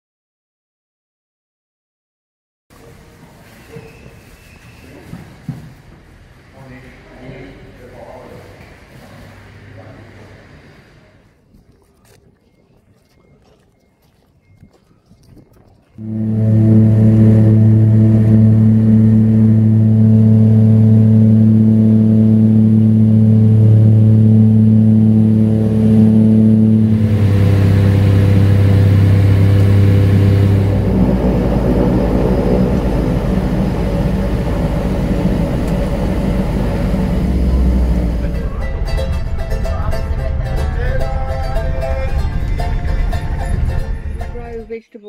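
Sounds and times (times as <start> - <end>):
plane rolling on rough airstrip: 15.9 - 44.7
turboprop engine drone: 16.0 - 44.8.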